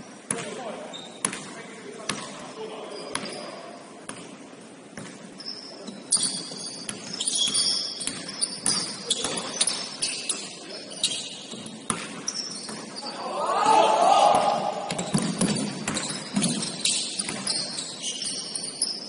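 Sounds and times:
sneakers squeaking on court: 0:00.2 - 0:13.2, 0:14.4 - 0:19.0
basketball bouncing on hardwood floor: 0:14.9 - 0:17.6.

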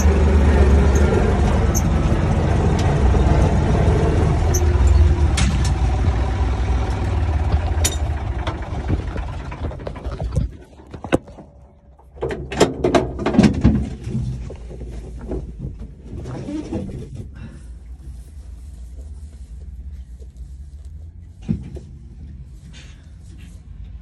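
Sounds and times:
tractor engine running: 0:00.0 - 0:24.0.

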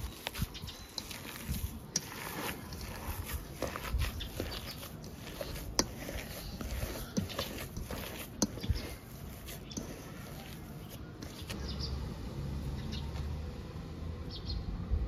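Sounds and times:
hands squishing mashed potato: 0:00.0 - 0:11.7.

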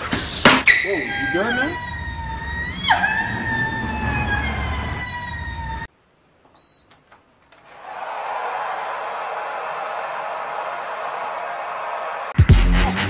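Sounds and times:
siren-like wailing tone: 0:01.0 - 0:05.9.

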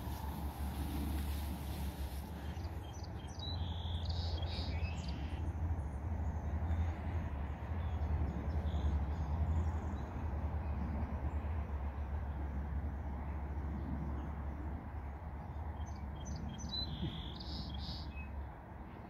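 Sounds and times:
steady low rumble: 0:00.0 - 0:03.6
birds chirping: 0:00.0 - 0:05.4.

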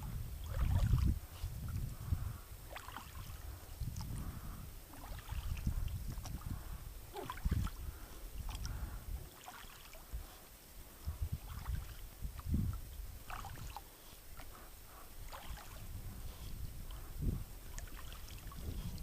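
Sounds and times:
paddle splashes and drips: 0:00.4 - 0:01.9, 0:02.6 - 0:04.2, 0:04.8 - 0:06.5, 0:07.1 - 0:07.8, 0:08.4 - 0:15.9, 0:17.6 - 0:19.0.

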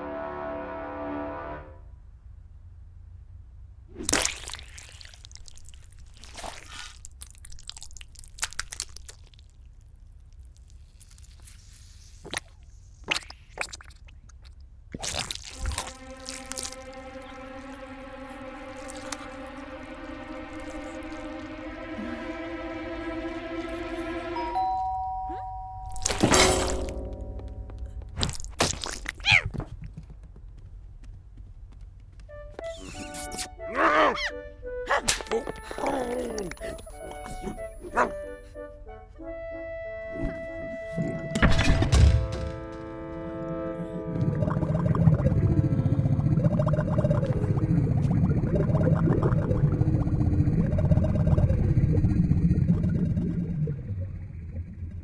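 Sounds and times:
soft squelching: 0:04.0 - 0:17.0
held musical notes: 0:15.6 - 0:28.2, 0:42.0 - 0:46.6.

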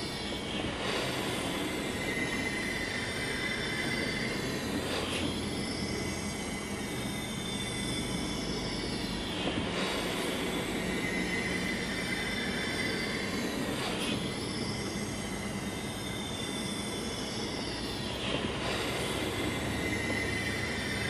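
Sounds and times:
model steam engine hissing and whining: 0:00.0 - 0:21.0.

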